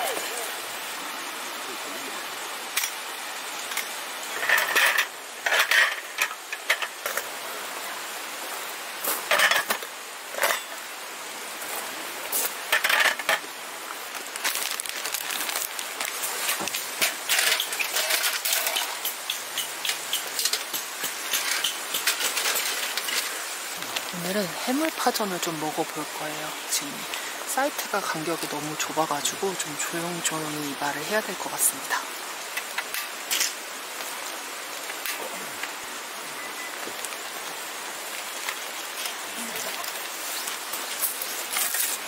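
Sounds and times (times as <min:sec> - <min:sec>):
stream rushing: 0:00.0 - 0:42.0
metal camp table clattering: 0:03.7 - 0:07.3, 0:09.3 - 0:10.8, 0:12.7 - 0:13.5, 0:16.4 - 0:23.4.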